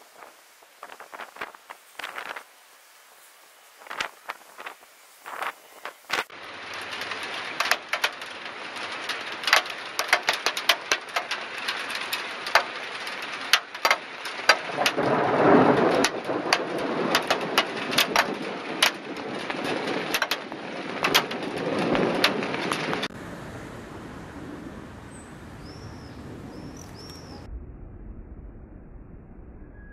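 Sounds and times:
heavy rain drops hitting: 0.0 - 27.5
thunder rumbling: 6.3 - 29.9
bird chirping: 25.0 - 27.5.

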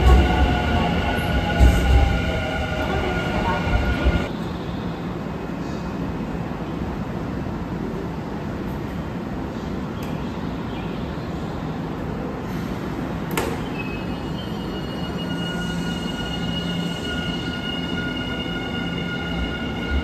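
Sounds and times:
high-pitched train whine: 0.0 - 5.3, 13.8 - 20.0
train rumble: 0.0 - 9.9.

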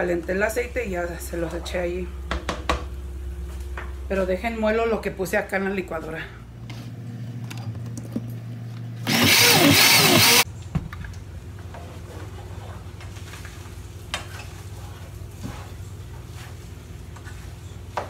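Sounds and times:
blender running: 9.0 - 10.4.

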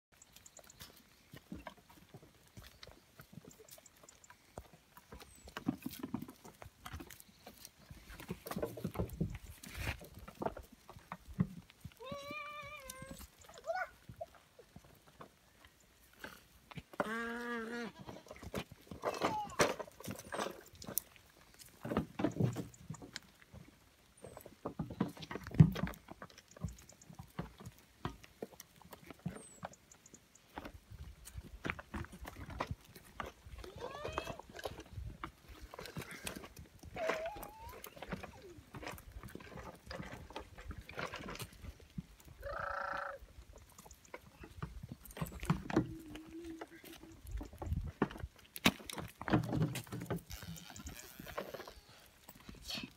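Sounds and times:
hooves clicking on rock: 0.1 - 52.9
goat kid bleating: 12.0 - 14.0, 17.0 - 18.3.

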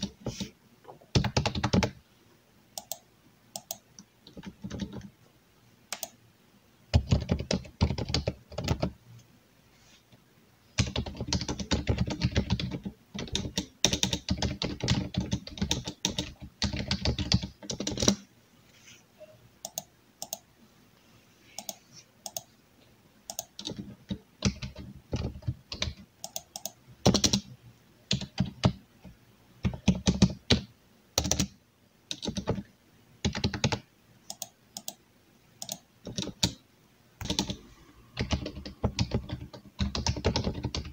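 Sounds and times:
typing on a keyboard: 1.1 - 2.0, 2.8 - 3.0, 3.6 - 5.1, 6.9 - 9.0, 10.8 - 18.2, 19.6 - 20.4, 21.6 - 22.5, 23.3 - 27.5, 28.1 - 28.8, 29.6 - 35.0, 35.6 - 36.6, 37.2 - 37.6, 38.2 - 40.9.

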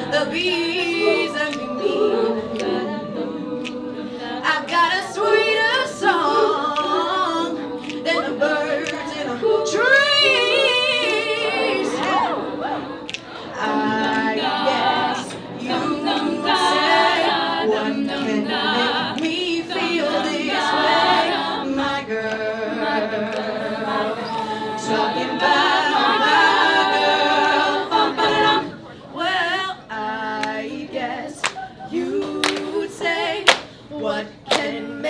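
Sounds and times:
girl singing lead: 0.0 - 27.4
backing voices in harmony: 0.0 - 35.0.

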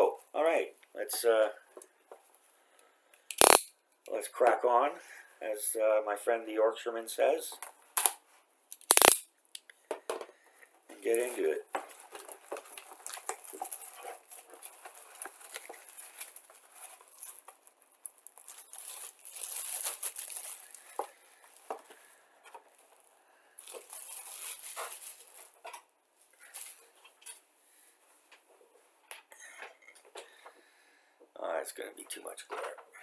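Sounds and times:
plastic wrap crinkling: 11.0 - 25.8, 26.4 - 27.0.

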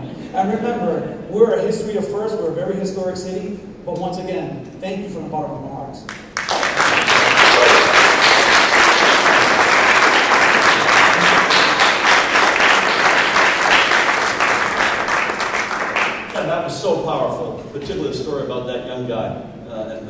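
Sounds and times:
audience applauding: 6.1 - 16.5.

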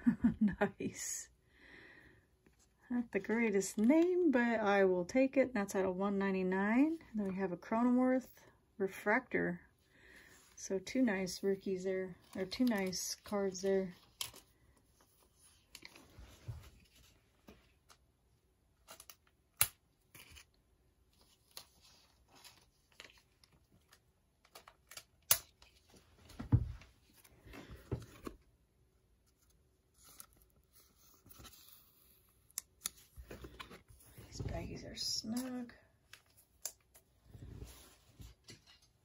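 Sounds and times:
cards sliding and rustling: 29.3 - 34.4.

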